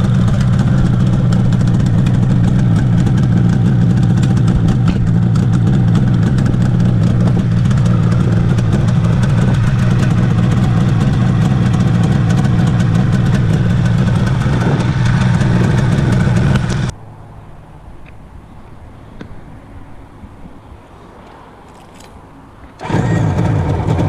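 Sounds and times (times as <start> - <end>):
two-stroke motorcycle engine running: 0.0 - 16.9, 22.8 - 24.0.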